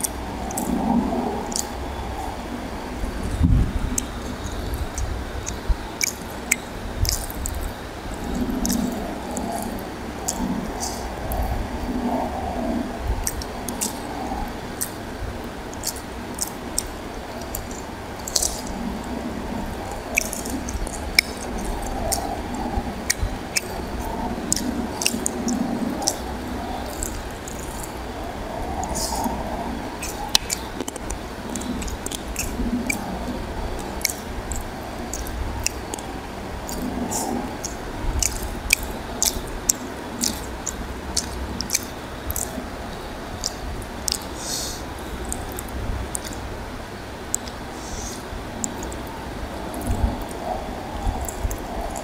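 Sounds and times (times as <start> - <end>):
fingers squishing through food: 0.0 - 0.8, 1.5 - 1.8, 3.8 - 11.5, 13.2 - 15.0, 15.7 - 18.8, 19.6 - 28.0, 30.0 - 42.7, 43.4 - 46.4, 47.3 - 49.1, 49.7 - 52.0
steady low hum: 0.0 - 52.0
fingers squishing rice: 3.9 - 11.5, 15.7 - 18.8, 19.6 - 28.0
wet eating smacks: 4.0 - 11.4, 15.7 - 18.8, 19.7 - 28.0, 30.0 - 42.6, 43.4 - 46.4, 51.1 - 52.0.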